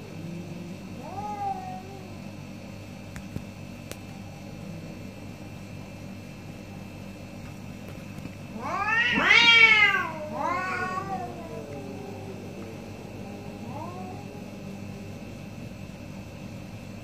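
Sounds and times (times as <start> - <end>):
cat yowling: 1.0 - 2.3, 8.6 - 14.8.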